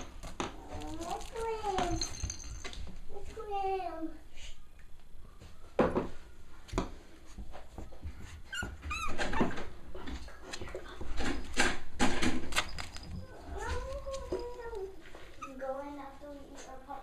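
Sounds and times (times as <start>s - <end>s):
puppies scuffling with soft toys: 0.0s - 3.5s, 7.2s - 16.8s
puppy squealing: 8.5s - 9.6s, 15.4s - 15.6s.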